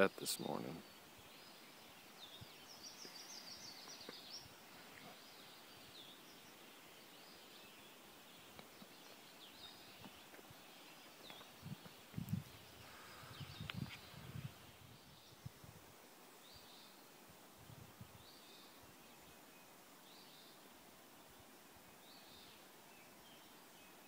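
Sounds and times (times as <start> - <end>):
birds calling: 0.0 - 15.5
low steady hiss: 0.0 - 24.0.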